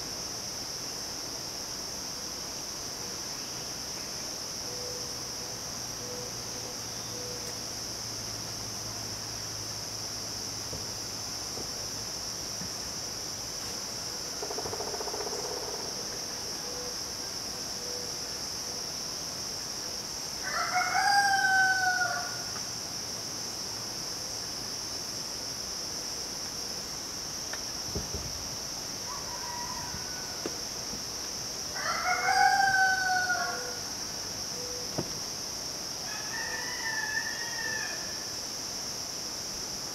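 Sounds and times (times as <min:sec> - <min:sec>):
insects droning: 0:00.0 - 0:39.9
rooster crowing: 0:20.4 - 0:22.5, 0:29.0 - 0:30.6, 0:31.8 - 0:33.9, 0:36.0 - 0:38.3.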